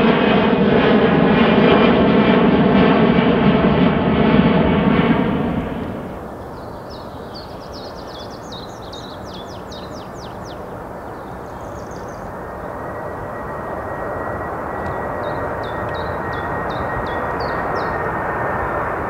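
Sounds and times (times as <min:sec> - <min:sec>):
jet engine noise: 0:00.0 - 0:19.0
songbird chirping: 0:06.3 - 0:12.3
thin steady whine: 0:10.7 - 0:19.0.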